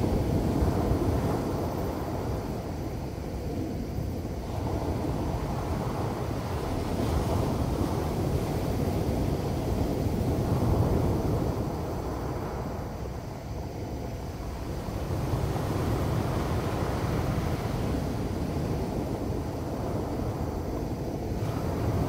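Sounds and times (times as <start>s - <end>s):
surf washing up cobble beach: 0.0s - 22.0s.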